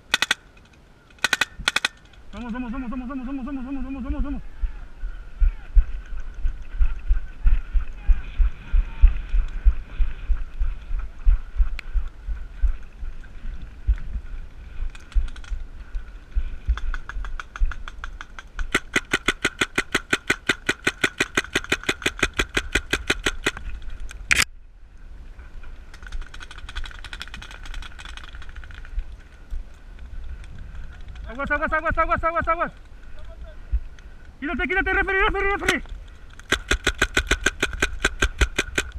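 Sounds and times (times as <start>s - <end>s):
sharp crack: 0.0s - 2.5s, 16.8s - 24.5s, 35.6s - 38.9s
paintball marker firing shots: 17.0s - 23.6s, 35.6s - 38.9s.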